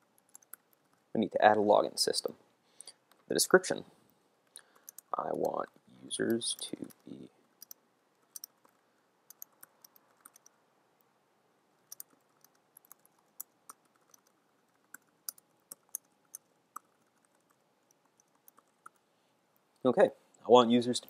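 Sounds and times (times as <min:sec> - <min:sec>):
keyboard typing: 0:00.0 - 0:01.0, 0:04.5 - 0:10.6, 0:11.8 - 0:19.0.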